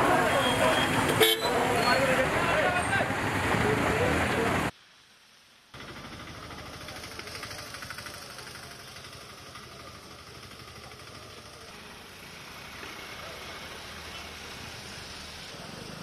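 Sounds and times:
engine idling: 5.8 - 16.0.

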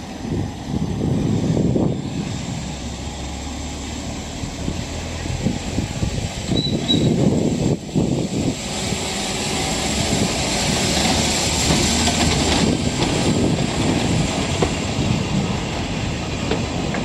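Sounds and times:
electric locomotive passing: 0.0 - 17.0
wheels on rails: 8.4 - 17.0.

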